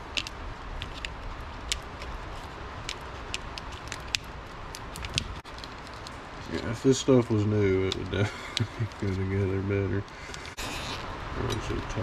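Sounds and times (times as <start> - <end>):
steady background hiss: 0.0 - 12.0
plastic clicks and crackles: 2.8 - 6.2.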